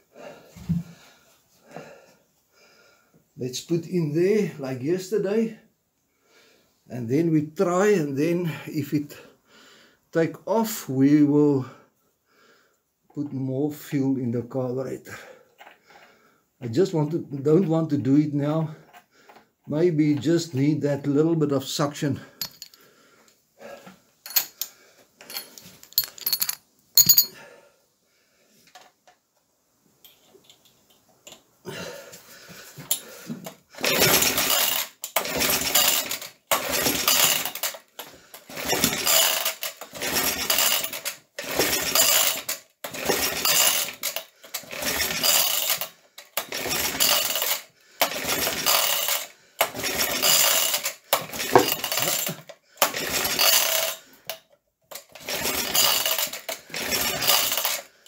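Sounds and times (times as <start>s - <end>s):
small engine recoil pull-start cranking: 33.8s - 57.9s.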